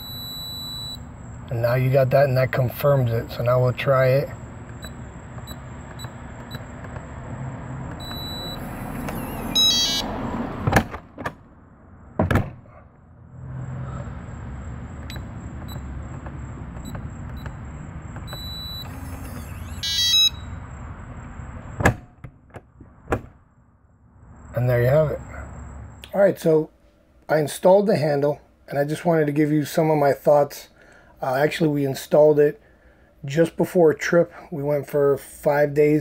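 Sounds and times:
loud electronic beep: 0.0 - 1.2, 8.0 - 10.1, 18.3 - 20.7
keypad button beeps: 4.7 - 6.7, 8.0 - 10.0, 15.1 - 15.9, 18.2 - 20.5.

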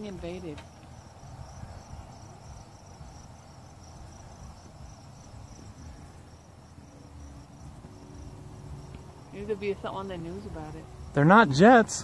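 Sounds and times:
low background rumble: 0.0 - 11.2
insects trilling: 0.0 - 12.0.

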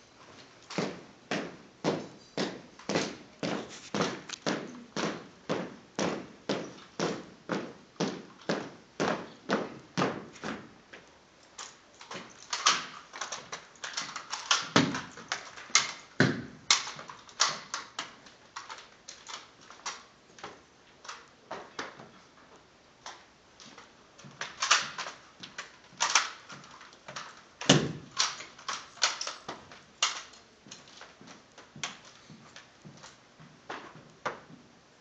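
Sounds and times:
rifle handling slaps and knocks: 0.6 - 22.1, 23.0 - 34.4
steps on hard floor: 30.7 - 34.6.

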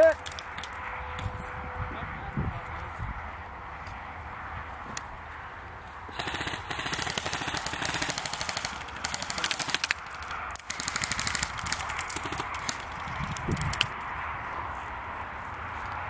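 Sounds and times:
airsoft gun rapid firing: 6.1 - 13.1.

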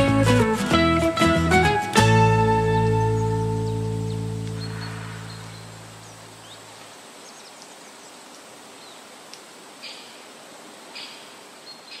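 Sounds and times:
background music: 0.0 - 6.0
outdoor background noise: 0.0 - 12.0
small birds chirping: 2.4 - 12.0.

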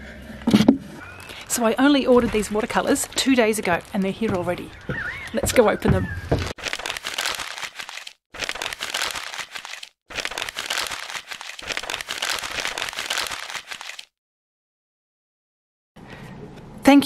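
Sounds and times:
paper bag crinkling: 1.2 - 4.8, 6.4 - 14.1.

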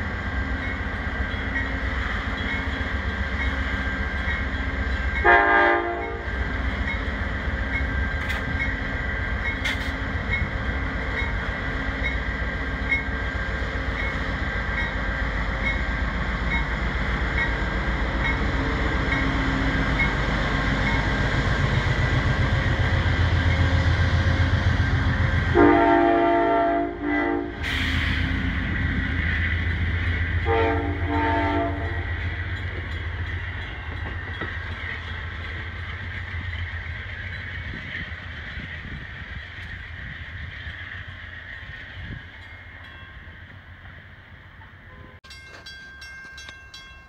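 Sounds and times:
train passing at speed: 0.0 - 47.0
train horn blast: 5.2 - 6.3, 25.5 - 27.8, 30.4 - 32.1.

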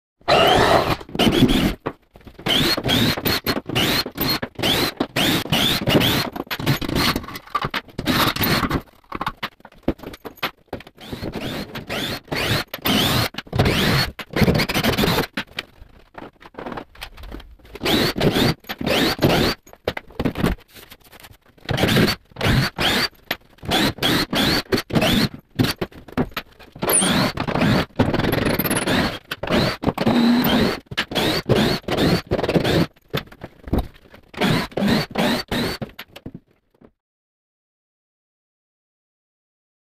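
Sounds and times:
cordless drill motor whirring: 0.3 - 1.8, 2.5 - 6.2, 11.0 - 15.1, 17.8 - 19.6, 21.8 - 25.3, 26.8 - 32.9, 34.4 - 35.9.

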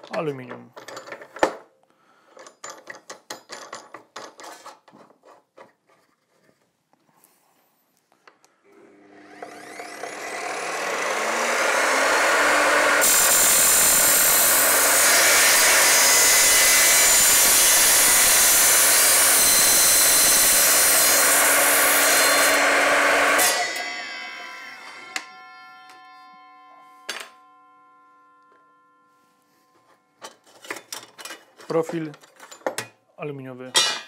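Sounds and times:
saw cutting through metal: 8.8 - 29.0
saw blade spinning up whine: 8.8 - 30.2.

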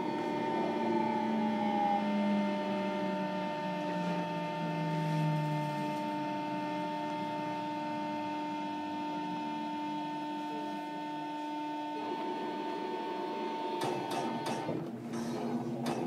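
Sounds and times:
electric train equipment humming: 0.0 - 16.0.

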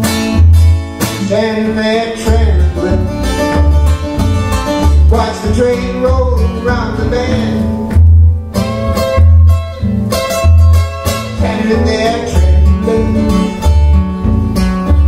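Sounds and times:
acoustic guitars playing: 0.0 - 15.0
low bass pulse: 0.4 - 14.9
man singing: 1.1 - 3.6, 4.9 - 7.8, 11.3 - 13.8.

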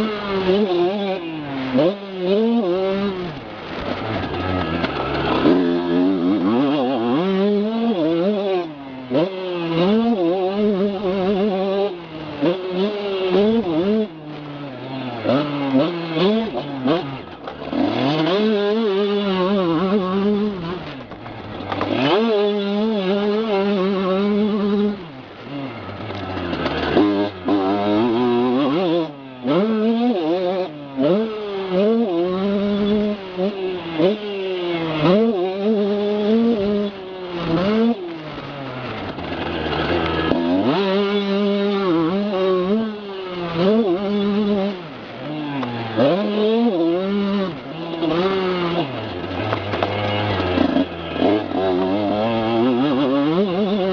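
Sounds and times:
motocross bike engine revving: 0.0 - 53.9.

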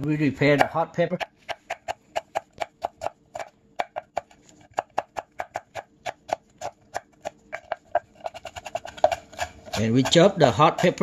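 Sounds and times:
knife chopping on wooden board: 0.5 - 11.0.

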